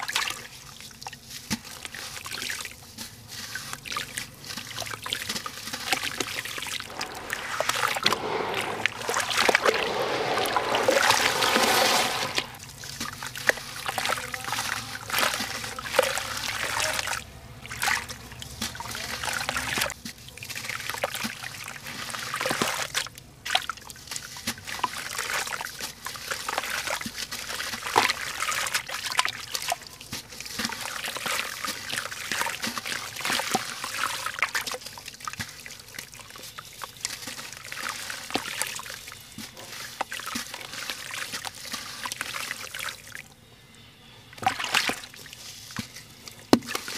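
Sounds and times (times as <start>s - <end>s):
water splashing and sloshing: 0.0s - 43.3s, 44.3s - 46.9s
gritty crumbs dropping into water: 4.6s - 14.1s.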